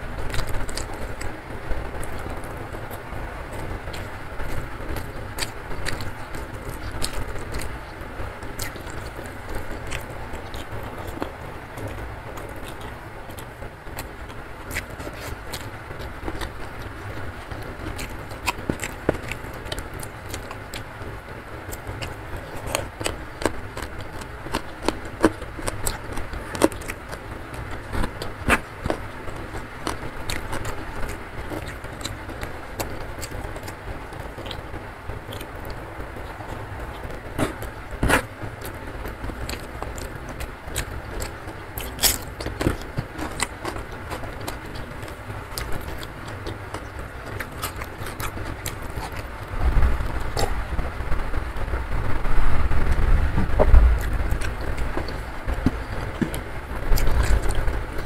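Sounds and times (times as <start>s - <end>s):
fingers squishing food: 0.1s - 50.6s
wet chewing and lip smacks: 2.0s - 20.9s, 21.7s - 38.8s, 39.4s - 49.3s
heavy rain: 48.3s - 58.0s.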